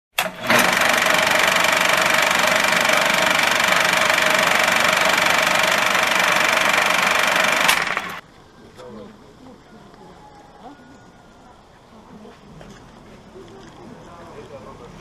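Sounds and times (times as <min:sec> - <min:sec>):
film projector clatter: 0:00.1 - 0:08.2.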